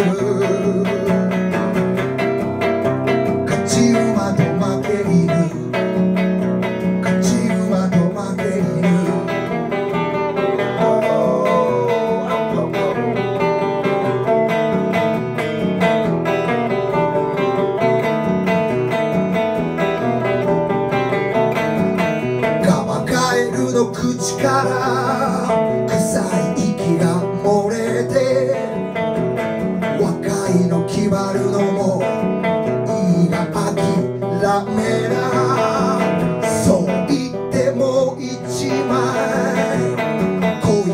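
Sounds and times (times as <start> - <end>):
electric guitar strummed and picked: 0.0 - 40.9.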